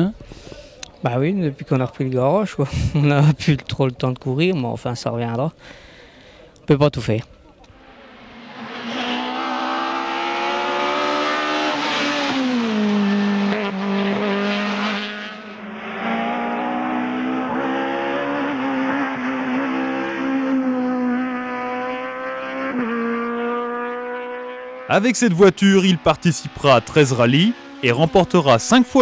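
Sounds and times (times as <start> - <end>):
rally car engine revving: 7.7 - 29.0.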